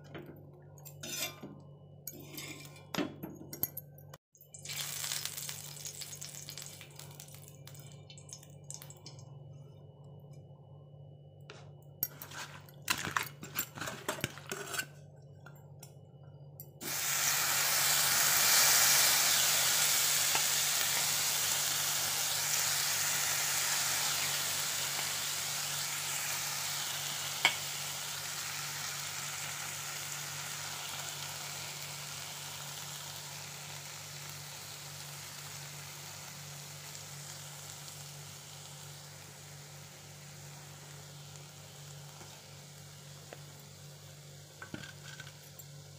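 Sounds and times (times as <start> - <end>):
fish sizzling on hot pan: 4.6 - 7.8, 16.8 - 44.6.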